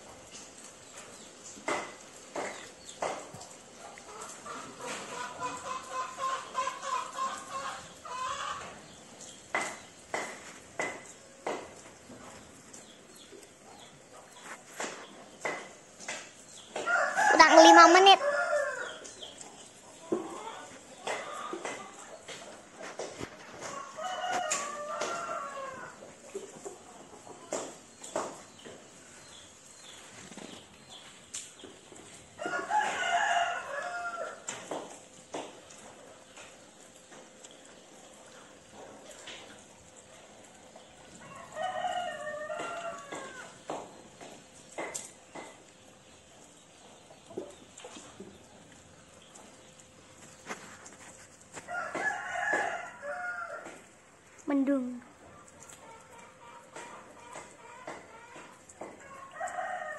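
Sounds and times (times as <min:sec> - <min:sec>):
chicken clucks: 0:02.4 - 0:16.2, 0:16.8 - 0:29.4, 0:55.2 - 0:59.8
rooster crow: 0:16.8 - 0:19.1, 0:23.6 - 0:26.0, 0:32.4 - 0:34.5, 0:41.2 - 0:43.6, 0:51.7 - 0:53.8, 0:56.6 - 0:59.9.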